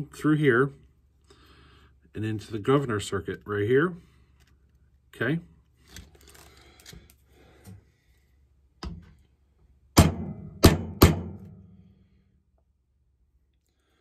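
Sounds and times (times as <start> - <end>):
hammer striking hole punch: 10.0 - 11.6.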